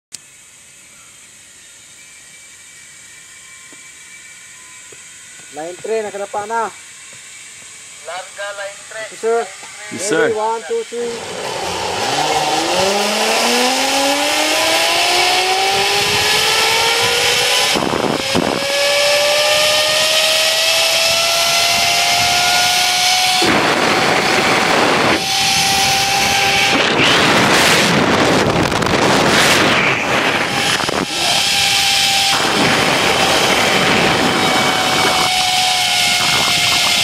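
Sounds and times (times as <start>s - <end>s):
pulleys whining along cable: 0.2s - 37.0s
wind on microphone: 11.2s - 37.0s.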